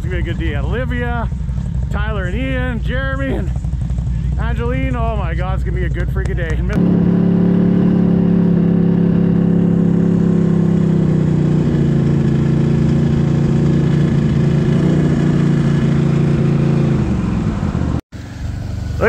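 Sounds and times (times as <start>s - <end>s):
tracked vehicle engine droning: 0.0s - 19.0s.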